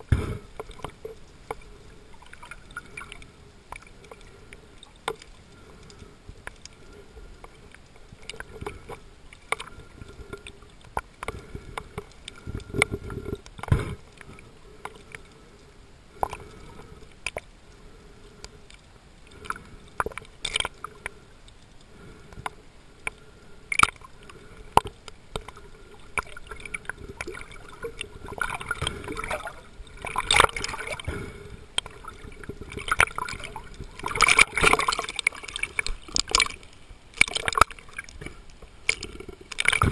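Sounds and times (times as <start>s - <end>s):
water sloshing and splashing: 0.0s - 15.4s, 18.7s - 22.5s, 23.1s - 39.9s
faint water hiss: 0.0s - 39.9s
underwater clicks and knocks: 5.0s - 6.8s, 7.4s - 15.2s, 19.4s - 21.1s, 24.8s - 36.6s, 37.2s - 39.9s.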